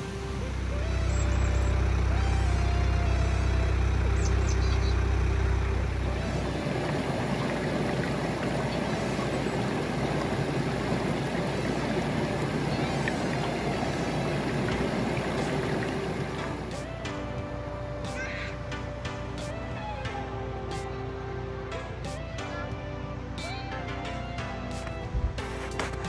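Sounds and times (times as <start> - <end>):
deep rumble: 0.0 - 17.9
steady rushing noise: 4.0 - 18.3.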